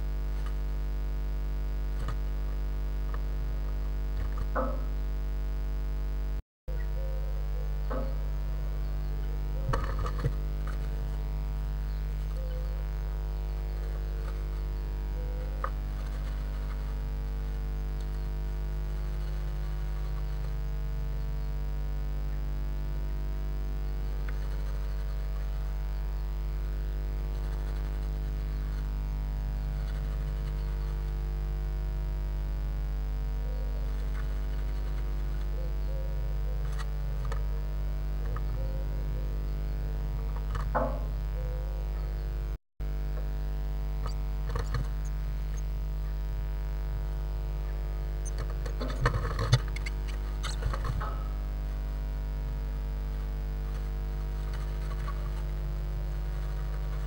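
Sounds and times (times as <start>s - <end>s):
electrical mains hum: 0.0s - 57.0s
short clicks and scratches: 9.6s - 20.6s, 27.0s - 29.0s, 44.0s - 46.2s, 47.7s - 51.8s, 53.0s - 57.0s.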